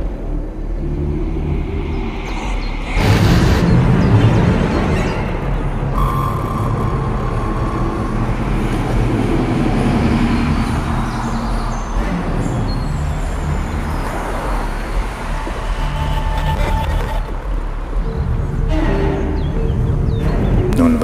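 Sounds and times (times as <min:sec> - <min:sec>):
loud low rumble: 0:00.0 - 0:21.0
faint brief tones: 0:06.0 - 0:08.9.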